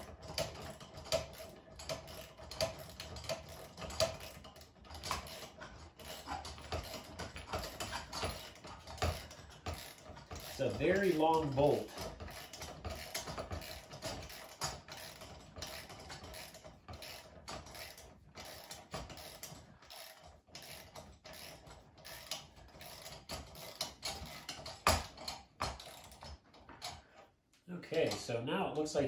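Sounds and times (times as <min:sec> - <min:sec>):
wrench metallic clicks and taps: 0:11.9 - 0:27.0.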